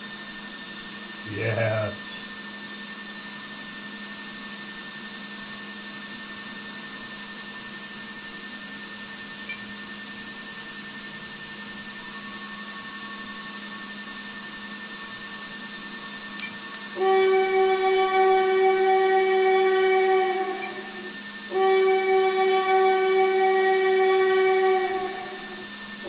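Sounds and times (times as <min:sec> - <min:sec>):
low hum: 0:01.3 - 0:02.2, 0:16.4 - 0:26.0.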